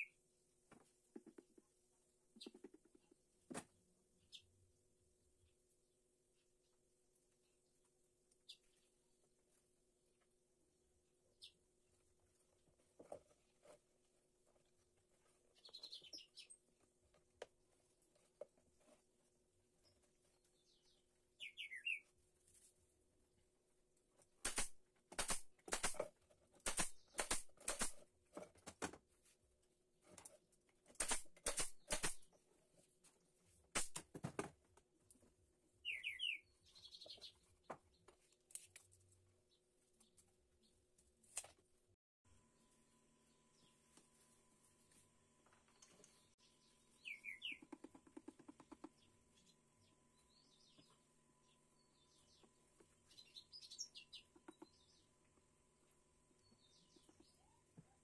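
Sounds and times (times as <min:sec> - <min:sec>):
bird chirping: 0:11.3 - 0:11.6, 0:15.2 - 0:16.8, 0:19.8 - 0:22.1, 0:35.8 - 0:38.4, 0:42.4 - 0:44.0, 0:45.5 - 0:55.4, 0:56.3 - 0:58.0
high bird chirps: 0:21.4 - 0:22.0, 0:35.8 - 0:37.4, 0:46.3 - 0:47.7
nail gun firing: 0:24.4 - 0:28.0, 0:30.9 - 0:32.3, 0:33.8 - 0:34.1.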